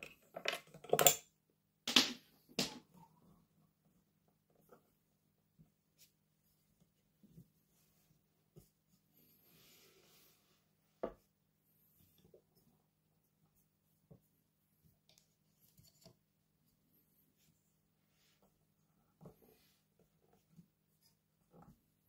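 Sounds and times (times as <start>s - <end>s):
soft rub on microphone: 5.6s - 22.0s.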